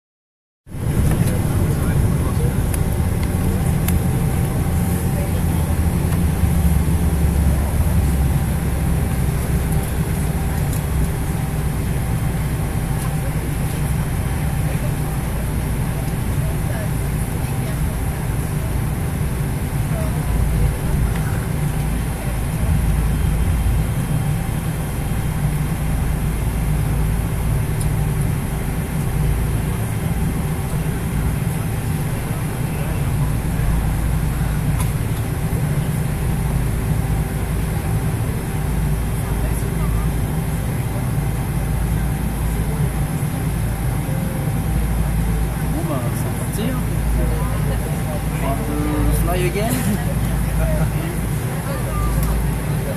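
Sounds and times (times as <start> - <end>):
aircraft engine rumble: 0.7 - 52.9.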